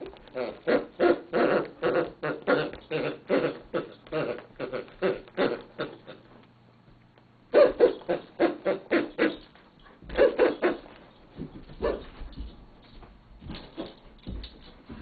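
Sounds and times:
dog toy squeaking: 0:00.0 - 0:06.2
dog chewing toy: 0:00.0 - 0:06.3.

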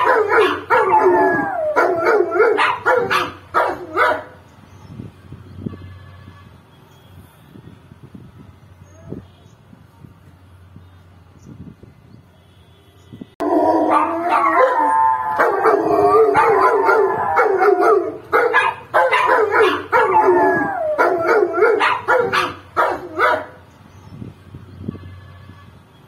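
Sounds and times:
dogs howling: 0:00.0 - 0:04.0, 0:13.4 - 0:23.2.

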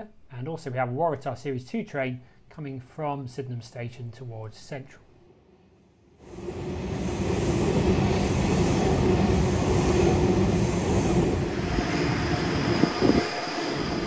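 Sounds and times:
electric train passing: 0:06.2 - 0:14.0.

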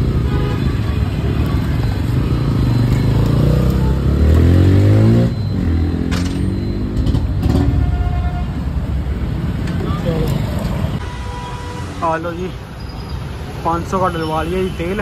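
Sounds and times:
motorcycle engine revving: 0:01.6 - 0:07.8.

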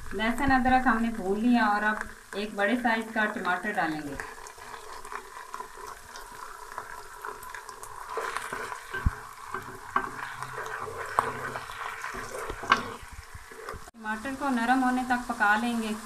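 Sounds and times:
vegetables sizzling in hot oil: 0:00.0 - 0:16.0
spatula scraping and tapping pan: 0:04.3 - 0:13.9.

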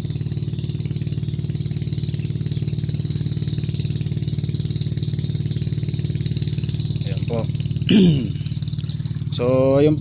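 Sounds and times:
small engine idling: 0:00.0 - 0:10.0.

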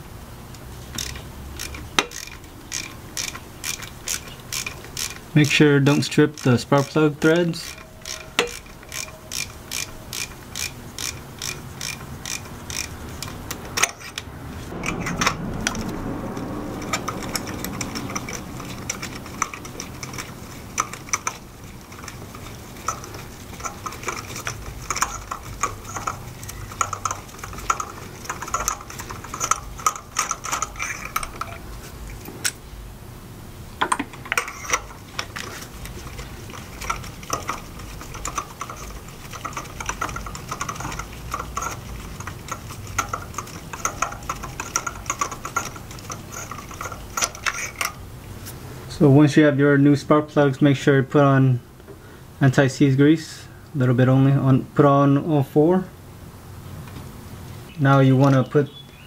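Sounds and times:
hand ratchet clicking: 0:00.9 - 0:32.6, 0:33.8 - 0:48.0.

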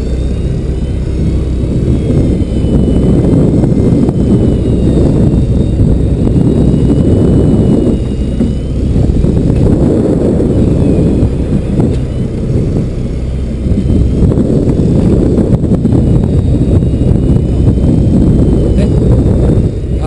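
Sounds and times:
boat engine drone: 0:00.0 - 0:20.0
wind buffeting microphone: 0:00.0 - 0:20.0.

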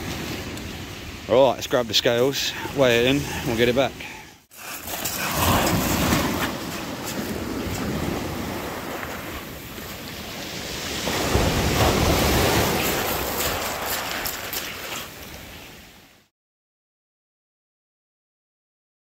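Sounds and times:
surf breaking on shingle beach: 0:04.5 - 0:16.0.

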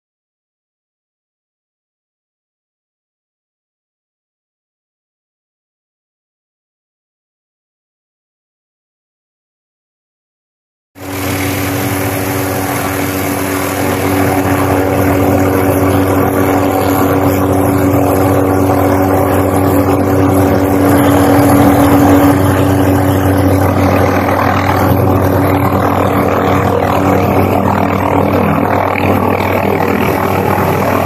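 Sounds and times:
helicopter turbine whine: 0:11.0 - 0:31.0.

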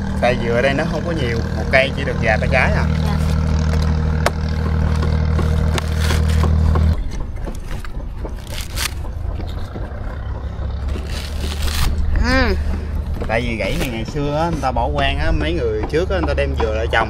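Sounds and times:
motor droning: 0:00.0 - 0:17.0
sharp knocks: 0:03.4 - 0:17.0
scraping sounds: 0:04.5 - 0:14.8.

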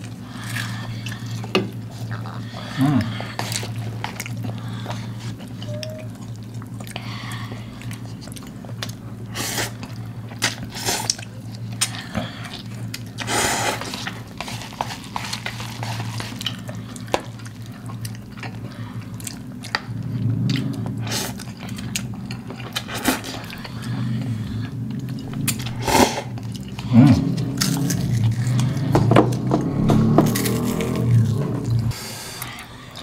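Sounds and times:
chewing: 0:00.0 - 0:33.0
steady low hum: 0:00.0 - 0:33.0.

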